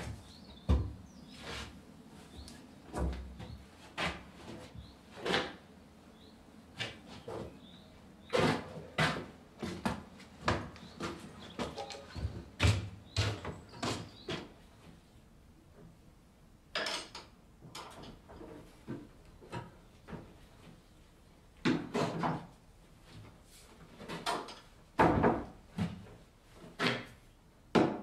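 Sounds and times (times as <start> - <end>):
objects knocking and clattering: 10.5 - 14.0.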